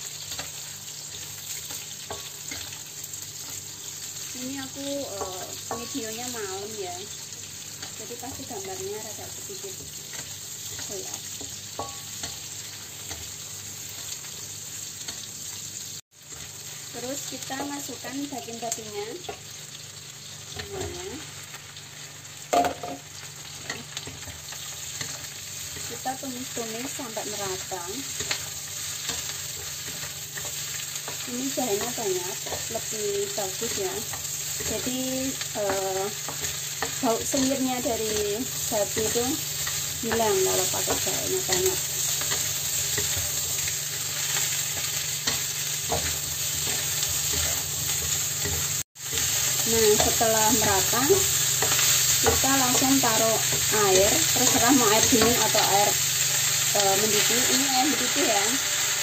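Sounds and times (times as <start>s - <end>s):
meat sizzling in oil: 0.0s - 59.0s
spatula stirring and scraping: 9.8s - 13.4s, 28.0s - 56.8s
sharp knock of meat landing in wok: 22.5s - 23.0s.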